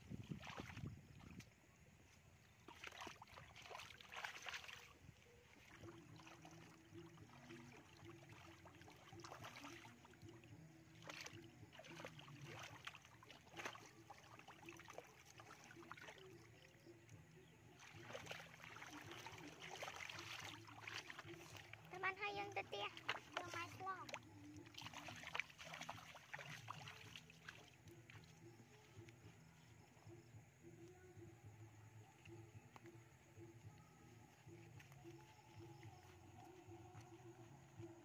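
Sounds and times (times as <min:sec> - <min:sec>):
hands squelching in wet mud: 0:00.2 - 0:01.5, 0:02.4 - 0:16.6, 0:17.8 - 0:29.5.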